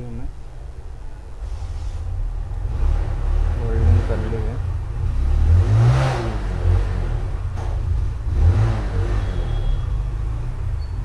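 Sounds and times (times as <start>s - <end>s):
vehicle engine revving: 1.8s - 11.0s.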